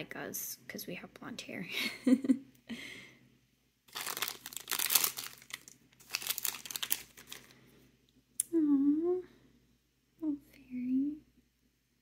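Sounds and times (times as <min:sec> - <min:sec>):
toy packaging crinkling: 0:03.9 - 0:07.6.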